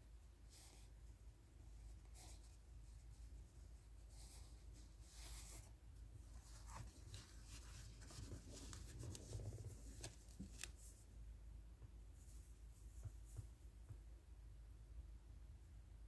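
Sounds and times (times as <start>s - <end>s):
paper rustling: 6.3s - 11.0s.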